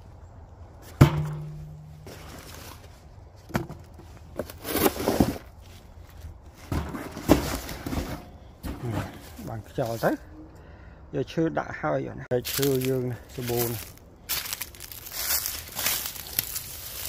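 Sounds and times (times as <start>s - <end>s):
knock on metal barrel: 1.0s - 1.9s
cardboard and paper rustling: 12.5s - 17.0s.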